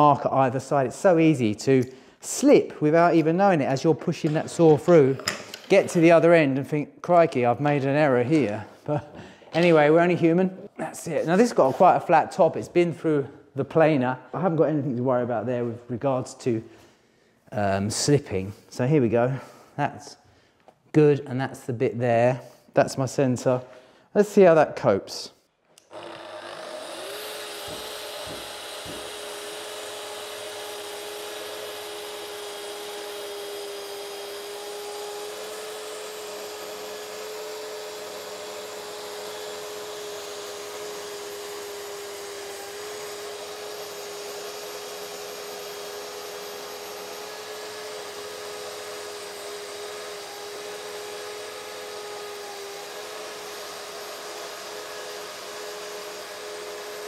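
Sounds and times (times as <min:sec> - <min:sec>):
circular saw cutting wood: 0:11.3 - 0:12.2, 0:25.8 - 0:57.0
dust extractor humming: 0:25.9 - 0:57.0.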